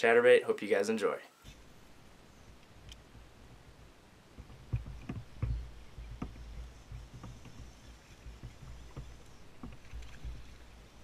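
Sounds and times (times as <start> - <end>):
wind rumble on microphone: 1.5 - 11.0
microphone handling noise: 4.3 - 11.0.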